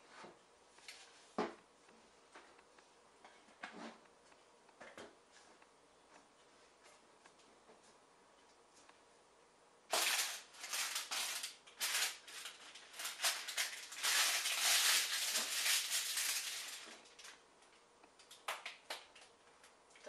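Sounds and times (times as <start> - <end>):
parchment paper crinkling: 9.9 - 17.4.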